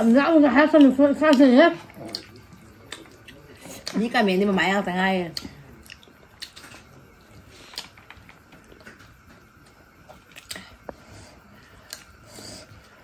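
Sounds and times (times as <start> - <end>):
soft chewing: 0.7 - 4.4, 5.2 - 13.0.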